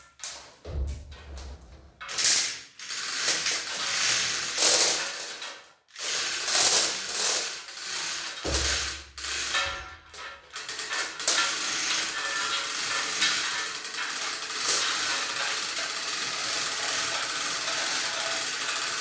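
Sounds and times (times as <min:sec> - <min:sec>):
chain hoist ratchet clicking: 0:02.1 - 0:19.0.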